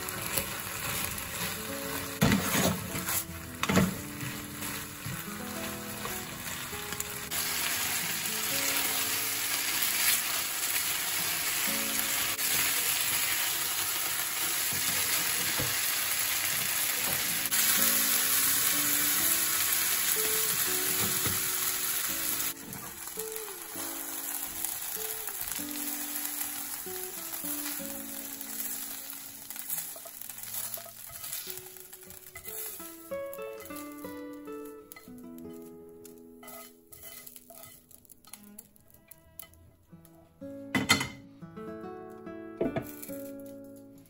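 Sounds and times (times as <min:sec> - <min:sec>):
fried rice sizzling in a pan: 0:00.0 - 0:39.5, 0:42.8 - 0:43.5
light background melody: 0:00.0 - 0:44.0.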